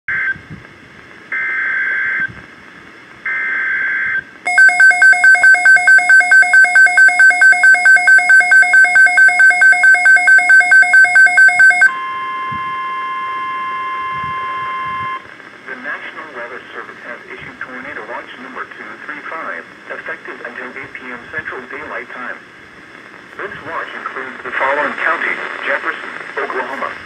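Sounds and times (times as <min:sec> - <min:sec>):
rapid pulsing beeps: 0:04.5 - 0:12.0
steady alarm tone: 0:04.5 - 0:15.2.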